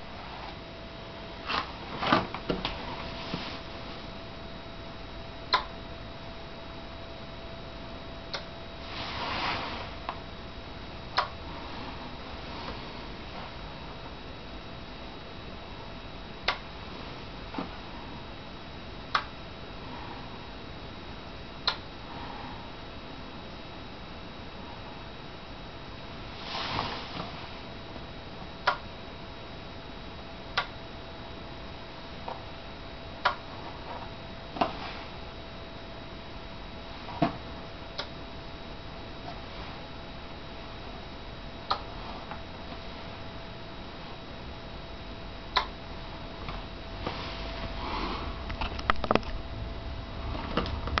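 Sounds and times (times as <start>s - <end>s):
faint high whine: 0.0s - 51.0s
faint steady hiss: 0.0s - 51.0s
rustle: 8.8s - 10.1s, 26.3s - 27.6s
person sniffing: 47.2s - 48.4s
small clicks and knocks: 48.5s - 49.4s.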